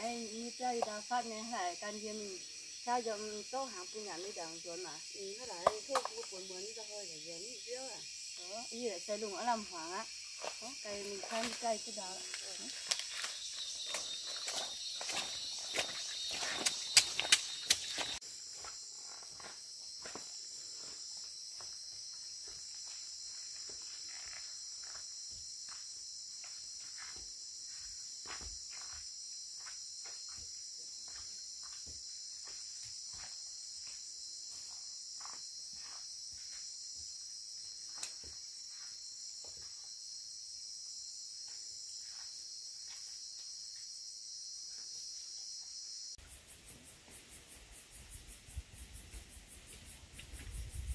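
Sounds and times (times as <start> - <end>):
forest insects chorus: 0.0 - 50.9
footsteps through undergrowth: 10.3 - 39.0.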